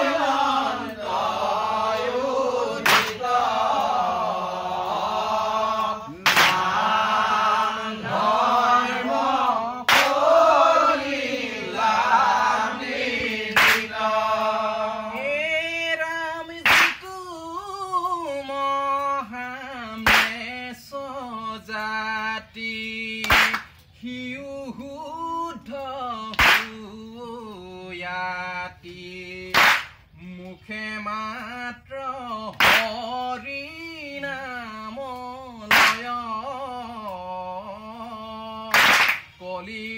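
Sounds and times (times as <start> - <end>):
men chanting together: 0.0 - 18.7
sharp handclaps: 2.8 - 3.4, 5.8 - 6.8, 9.9 - 10.4, 13.5 - 14.0, 16.6 - 17.2, 20.0 - 20.5, 23.2 - 23.8, 26.3 - 26.8, 29.5 - 30.1, 32.5 - 33.1, 35.7 - 36.2, 38.7 - 39.4.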